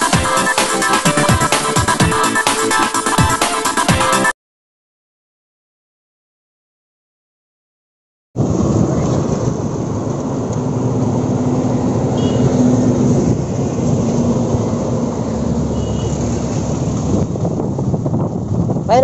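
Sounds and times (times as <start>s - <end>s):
wind buffeting microphone: 8.4s - 19.0s.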